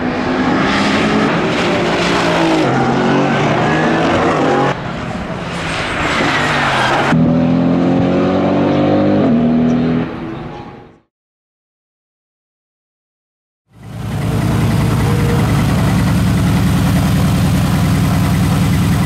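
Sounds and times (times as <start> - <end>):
race car engine accelerating: 0.0 - 4.8, 6.8 - 10.2, 13.8 - 19.0.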